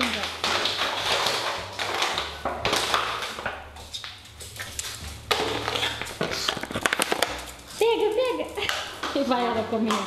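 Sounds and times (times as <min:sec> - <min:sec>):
plastic bottle crinkling: 0:00.0 - 0:10.0.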